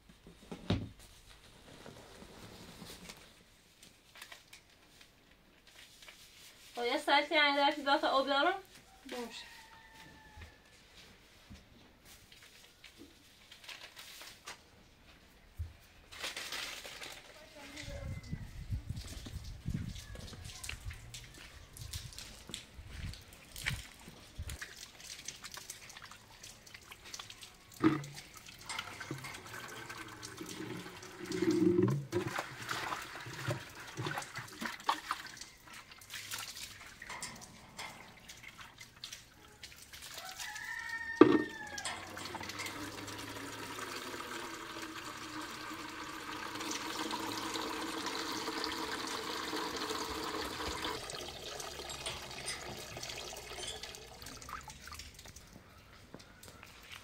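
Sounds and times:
water running into container: 0:19.0 - 0:55.6.

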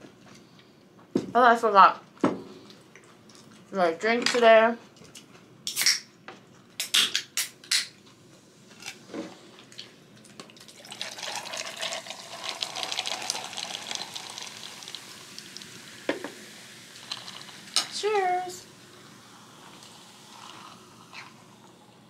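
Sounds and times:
fizzy drink pouring over ice: 0:10.6 - 0:22.0.

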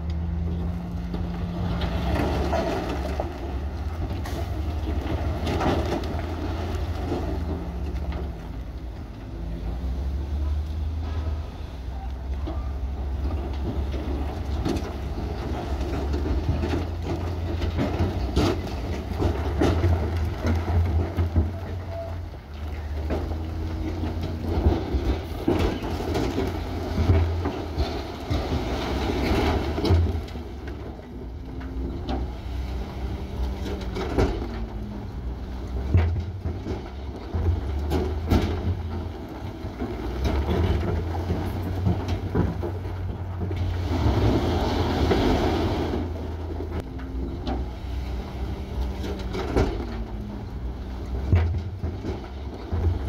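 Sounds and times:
heavy diesel machinery rumbling: 0:00.0 - 0:53.0
knocks and clanks: 0:33.4 - 0:43.7.

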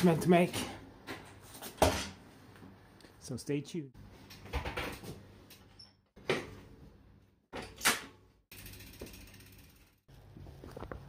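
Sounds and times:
bike clunking and rattling: 0:07.5 - 0:11.0.

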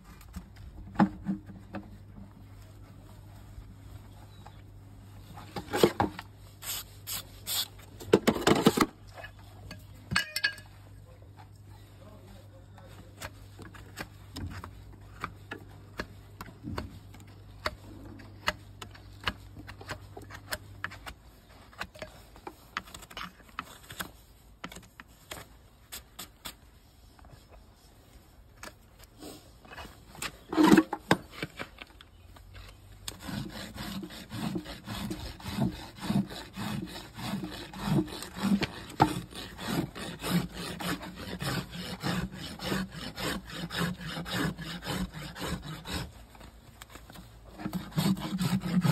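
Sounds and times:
hoof rasp filing: 0:33.0 - 0:48.9.

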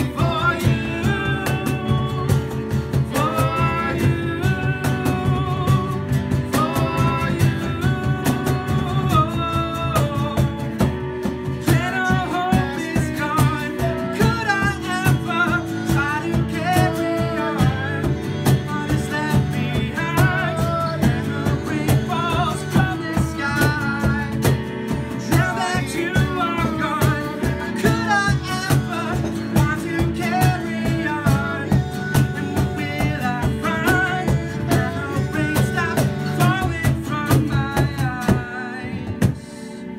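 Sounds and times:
cajon beat: 0:00.0 - 0:39.9
man singing: 0:00.0 - 0:39.9
strummed acoustic guitar: 0:00.0 - 0:39.9.

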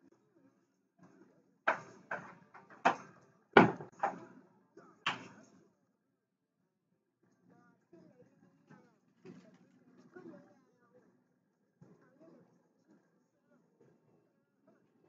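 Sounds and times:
sharp knocks: 0:03.6 - 0:04.2.

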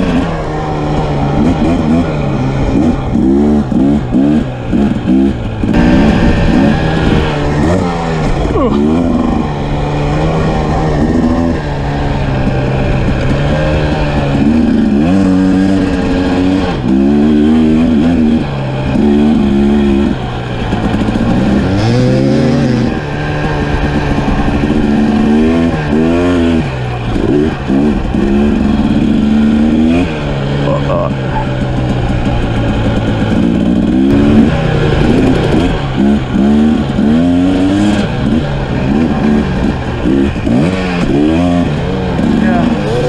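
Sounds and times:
dirt bike engine accelerating: 0:00.0 - 0:43.0.

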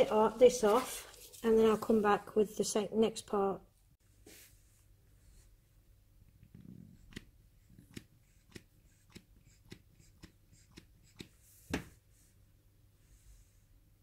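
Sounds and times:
soft rustle of handling: 0:00.0 - 0:02.3, 0:04.0 - 0:05.6.

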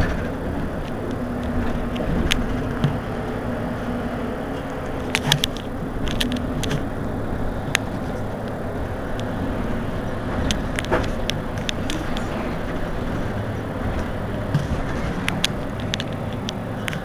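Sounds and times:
bus engine idling: 0:00.0 - 0:17.0
sharp clicks: 0:10.4 - 0:17.0.

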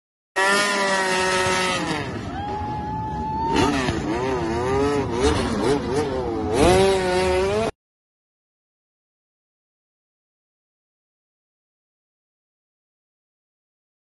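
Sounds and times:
motorcycle engine revving: 0:00.4 - 0:02.6, 0:03.4 - 0:07.8.

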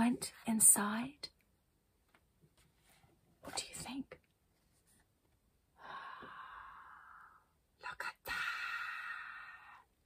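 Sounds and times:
person exhaling breathily: 0:05.8 - 0:07.4.

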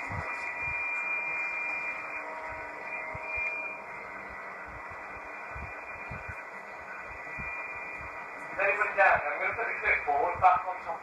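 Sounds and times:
faint steady tones: 0:00.0 - 0:11.0
radio static hiss: 0:00.0 - 0:11.0
soft low thumps: 0:04.7 - 0:06.4.

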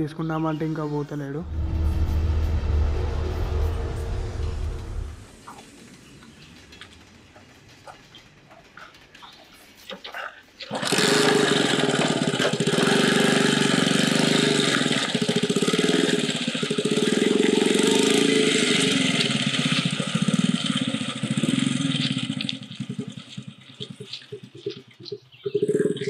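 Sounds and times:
small motorcycle engine: 0:10.7 - 0:24.3.

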